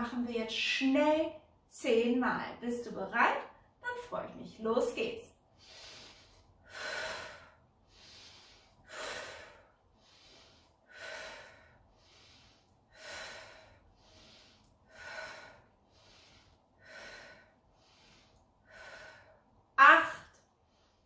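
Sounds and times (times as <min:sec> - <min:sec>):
woman breathing deeply: 0:05.4 - 0:21.0.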